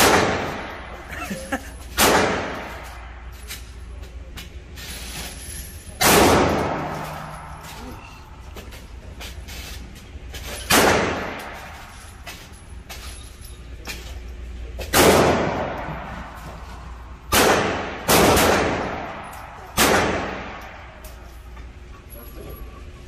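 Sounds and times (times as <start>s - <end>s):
handgun shots echoing indoors: 0.0s - 1.0s, 1.9s - 3.3s, 6.0s - 7.8s, 10.7s - 12.0s, 14.8s - 21.2s
fainter distant gunshots: 17.3s - 20.8s.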